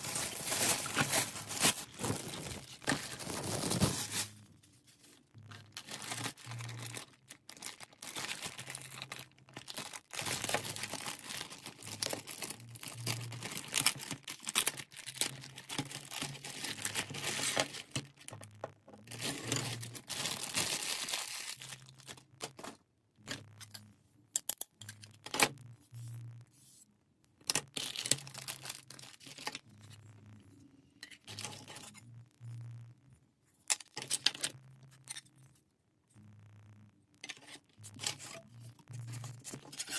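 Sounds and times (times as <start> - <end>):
plastic packaging crinkling and tearing: 0.0 - 23.9, 27.4 - 30.0, 37.2 - 39.9.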